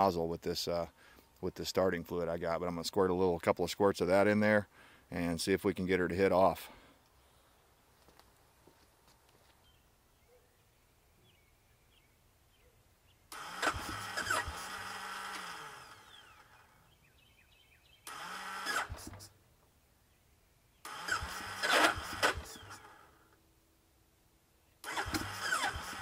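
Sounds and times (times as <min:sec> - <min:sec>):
electric starter cranking engine: 0:13.3 - 0:16.8, 0:18.0 - 0:19.4, 0:20.8 - 0:23.4, 0:24.8 - 0:26.0.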